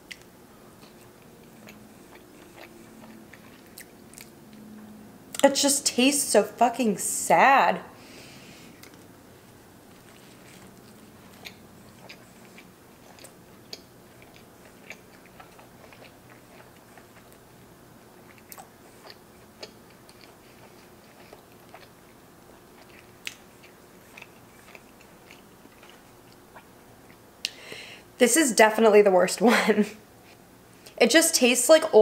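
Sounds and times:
person chewing food: 0.0s - 4.6s, 8.4s - 27.6s.

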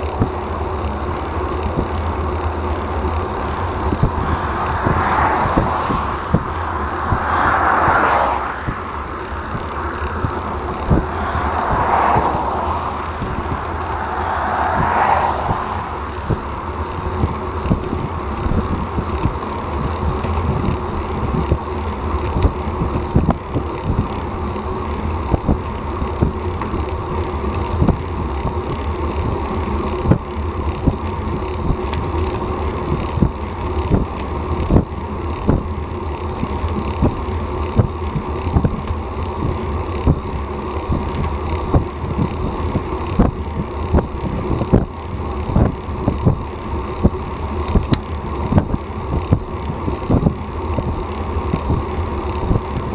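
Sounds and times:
passing car: 0.0s - 22.7s
road and tyre rumble: 0.0s - 52.9s
wind buffeting microphone: 3.1s - 24.6s, 36.9s - 52.9s.

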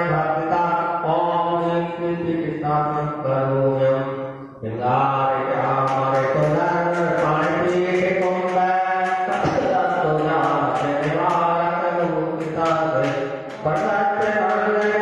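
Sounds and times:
person chanting into microphone: 0.0s - 15.0s
quick regular tapping: 5.7s - 15.0s.

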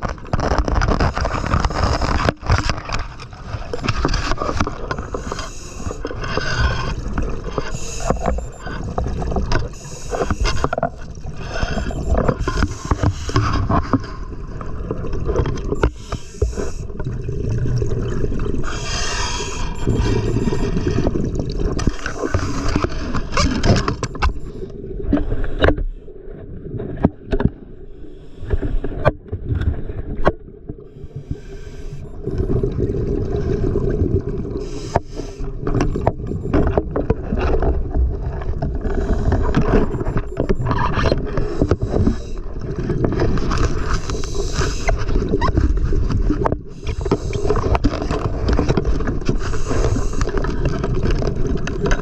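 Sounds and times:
muffled rushing water underwater: 0.0s - 52.0s
sharp clicks and knocks: 35.7s - 36.8s.

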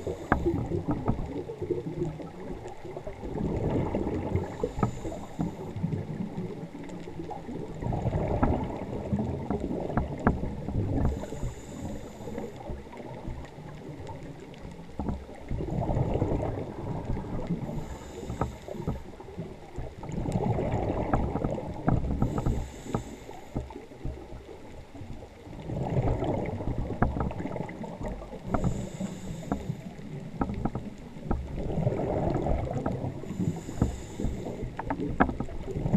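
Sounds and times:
regulator inhale hiss: 0.0s - 0.8s, 4.4s - 5.9s, 11.0s - 12.8s, 17.6s - 19.2s, 22.2s - 23.8s, 28.5s - 30.1s, 33.2s - 34.9s
exhaled bubbles rushing: 0.0s - 11.9s, 15.2s - 22.8s, 23.9s - 29.0s, 30.1s - 35.9s.

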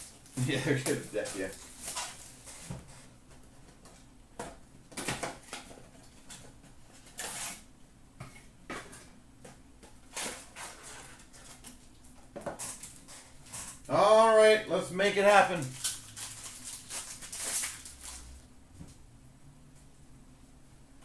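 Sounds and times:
cardboard rustling and scraping: 0.2s - 4.0s, 10.0s - 13.8s.

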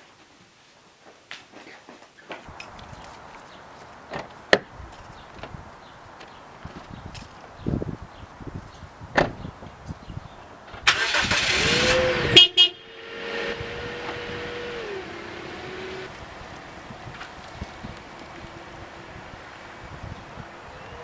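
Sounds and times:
car door shutting: 9.1s - 9.4s
car engine starting and running: 10.8s - 21.0s.

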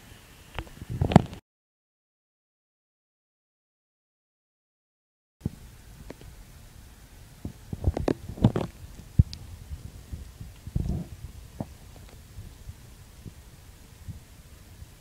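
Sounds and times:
low hiss: 0.0s - 1.4s, 5.4s - 15.0s.

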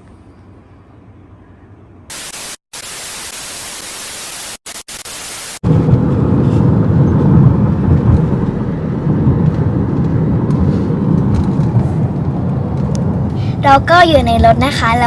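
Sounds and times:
static hiss glitch effect: 2.1s - 5.6s
moving car rumble inside cabin: 5.6s - 15.0s.

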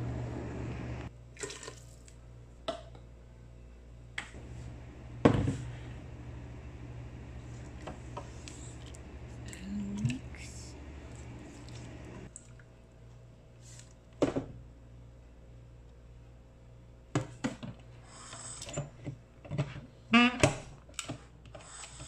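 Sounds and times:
steady low hum: 0.0s - 1.3s, 2.2s - 17.1s.

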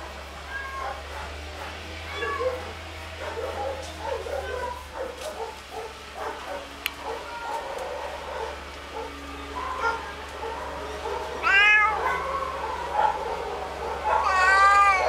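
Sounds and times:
cat meowing: 0.5s - 1.0s, 2.1s - 2.6s, 7.1s - 7.7s, 11.4s - 12.2s, 14.2s - 15.0s.

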